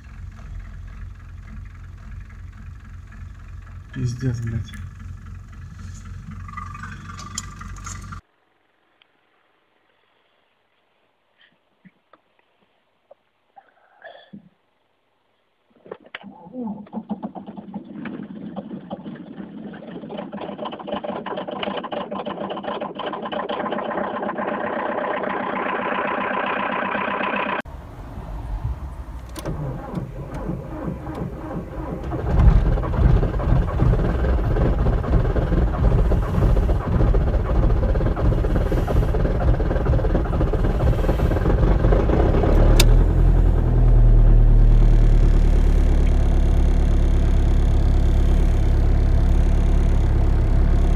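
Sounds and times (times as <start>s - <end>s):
petrol car engine rising in pitch: 0.0s - 8.2s, 20.4s - 50.9s
diesel engine cranking and idling: 0.0s - 8.3s, 20.1s - 50.9s.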